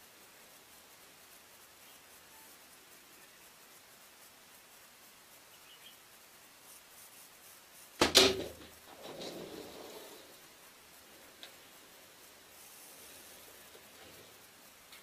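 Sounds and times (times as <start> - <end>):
arrow striking animal: 8.0 - 8.7.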